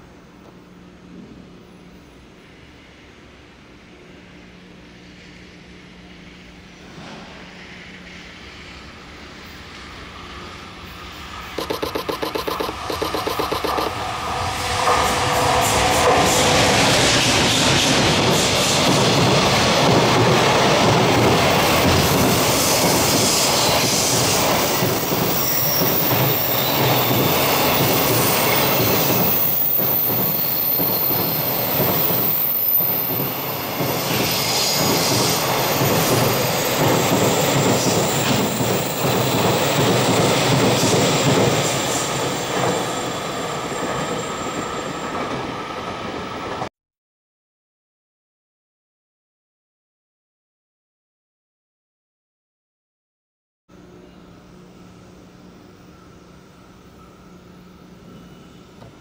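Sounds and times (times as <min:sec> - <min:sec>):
train wheels rumbling on rails: 0:11.6 - 0:46.7.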